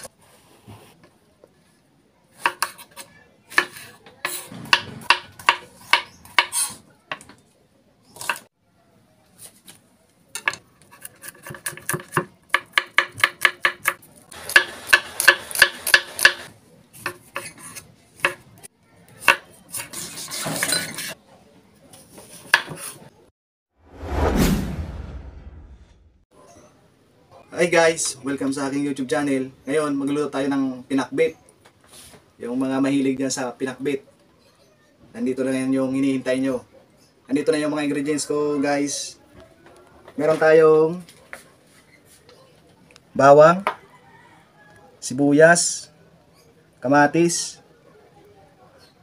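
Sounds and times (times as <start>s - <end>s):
knife chopping on wooden board: 11.0s - 17.6s
falling whoosh: 23.8s - 26.2s.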